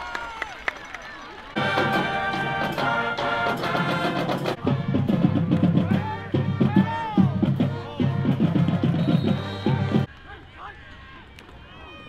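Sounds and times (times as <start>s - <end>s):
heavy drum beat: 3.7s - 10.1s.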